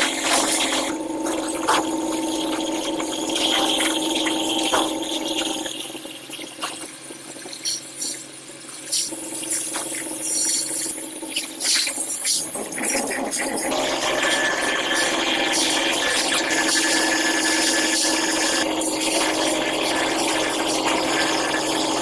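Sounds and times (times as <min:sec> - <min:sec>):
constant hum: 0:00.0 - 0:16.6
molten zinc hissing and bubbling: 0:00.0 - 0:22.0.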